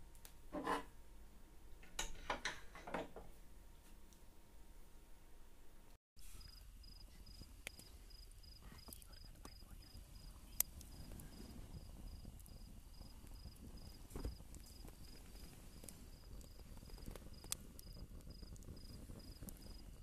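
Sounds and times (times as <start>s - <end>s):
crickets chirping: 6.2s - 20.0s
burning wood popping: 6.3s - 20.0s.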